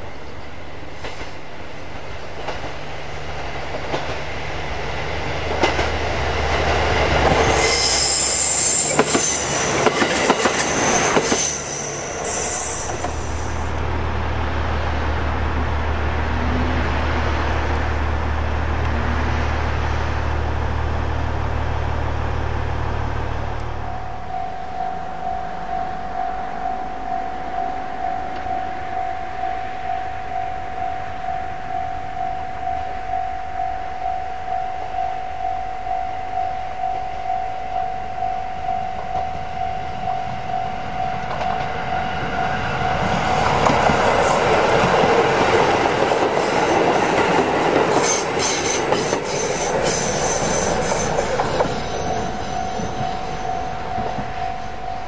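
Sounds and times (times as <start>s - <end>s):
train wheels squealing: 7.2s - 13.8s, 42.4s - 55.0s
diesel engine drone: 13.0s - 29.5s.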